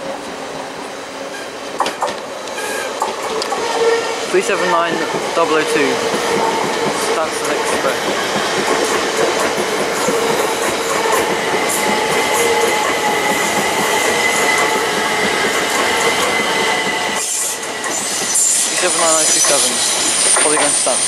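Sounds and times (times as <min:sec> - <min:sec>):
train wheels rumbling on rail: 0:00.0 - 0:21.0
high-pitched squeal: 0:10.1 - 0:21.0.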